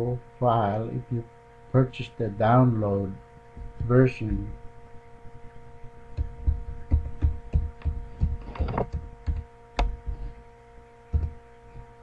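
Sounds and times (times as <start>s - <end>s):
electrical hum: 0.0s - 12.0s
keyboard keys typed: 6.2s - 10.2s.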